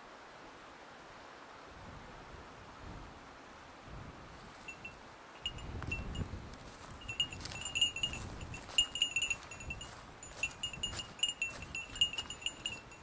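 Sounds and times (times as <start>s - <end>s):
high tinkling notes: 4.7s - 6.3s, 7.0s - 13.0s.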